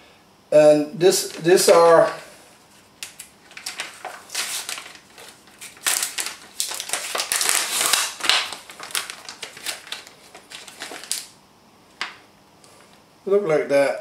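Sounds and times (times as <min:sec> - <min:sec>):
plastic film peeling and crinkling: 0:01.2 - 0:12.2.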